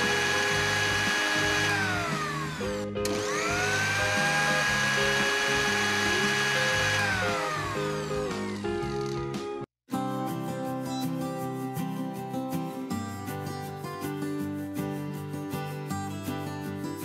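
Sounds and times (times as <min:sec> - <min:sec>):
mixer grinder motor whining: 0:00.0 - 0:09.3.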